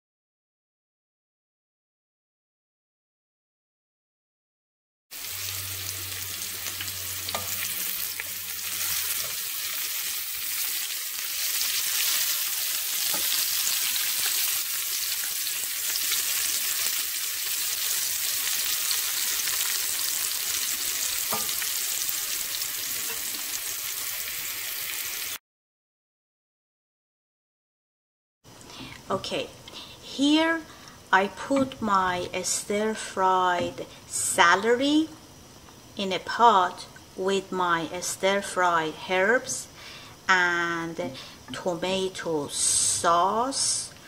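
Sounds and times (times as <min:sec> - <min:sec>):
celery sizzling in oil: 0:05.1 - 0:25.4.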